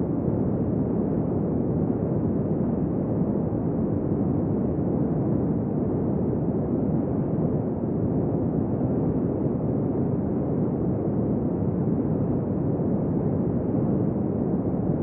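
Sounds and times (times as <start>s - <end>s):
low steady wind: 0.0s - 15.0s.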